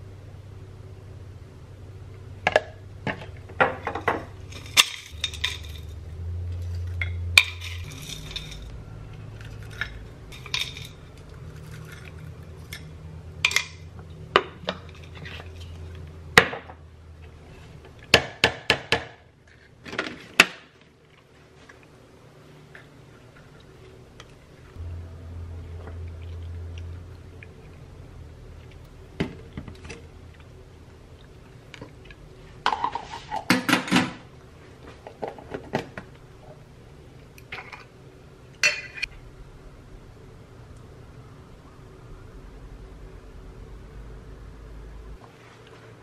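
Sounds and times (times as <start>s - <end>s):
low steady hum: 0.0s - 46.0s
spoons clinking on glass: 7.4s - 8.7s, 9.6s - 11.0s.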